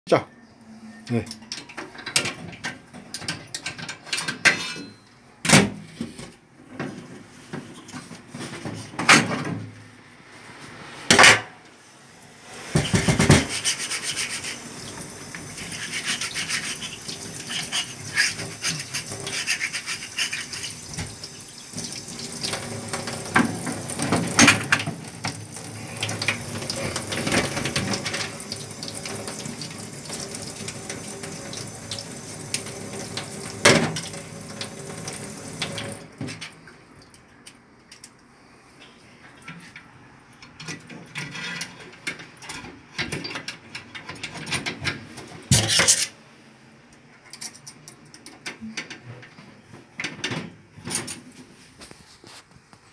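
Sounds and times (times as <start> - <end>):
scrubbing metal parts: 12.8 - 14.8, 15.4 - 21.1.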